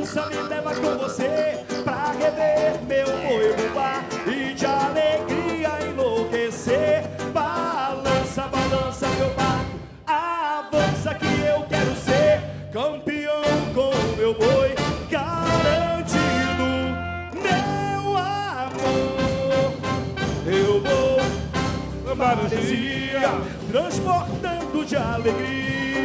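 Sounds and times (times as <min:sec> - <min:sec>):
quick drum beats: 0:18.9 - 0:26.0.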